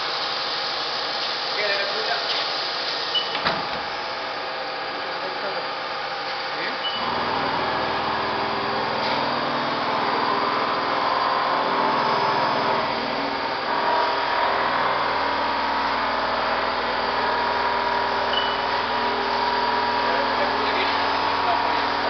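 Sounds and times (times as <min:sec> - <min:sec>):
coolant spraying: 0:00.0 - 0:22.0
milling machine whine: 0:00.0 - 0:22.0
metal cutting noise: 0:06.9 - 0:22.0.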